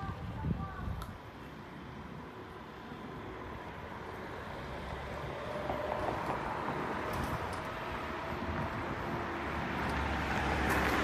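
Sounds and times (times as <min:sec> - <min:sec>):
wind noise on microphone: 0:00.0 - 0:01.9, 0:05.1 - 0:11.0.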